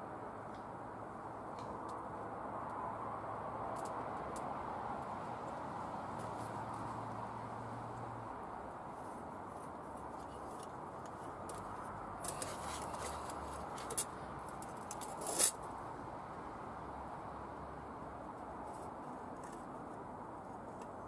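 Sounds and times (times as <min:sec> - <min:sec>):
metal lantern scrape: 0:11.5 - 0:15.6.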